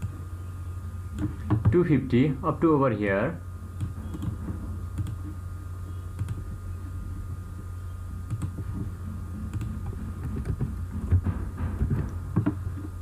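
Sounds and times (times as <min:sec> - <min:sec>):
steady low hum: 0:00.0 - 0:13.0
computer mouse clicks: 0:03.8 - 0:04.4, 0:05.0 - 0:05.3, 0:06.2 - 0:06.5, 0:08.3 - 0:08.6, 0:09.4 - 0:10.7.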